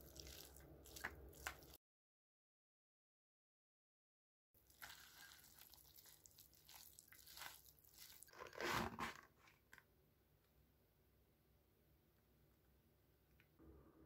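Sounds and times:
plastic lid crackling: 8.3 - 9.8.

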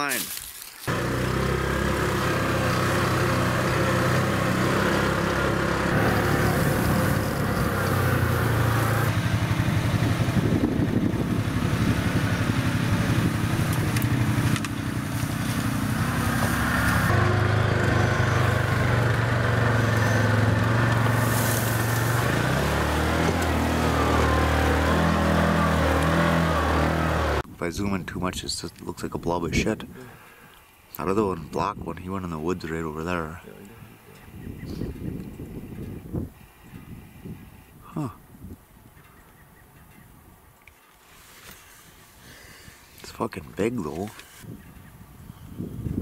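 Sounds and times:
vehicle engine running: 0.9 - 27.4.

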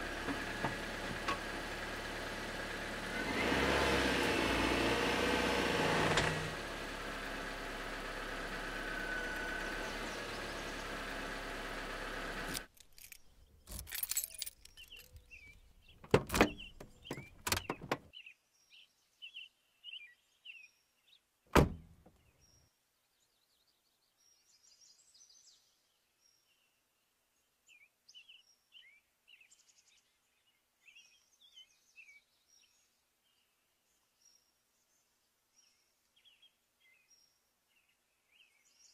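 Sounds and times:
car engine running: 0.0 - 18.1
faint birds chirping: 7.1 - 38.9
car door clicks and knocks: 16.0 - 18.1, 21.5 - 21.9
car door slam: 16.0 - 18.1, 21.5 - 21.9.

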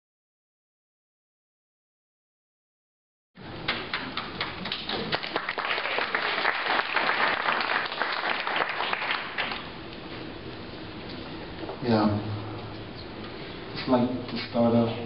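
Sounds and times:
small audience applauding: 3.6 - 9.7.

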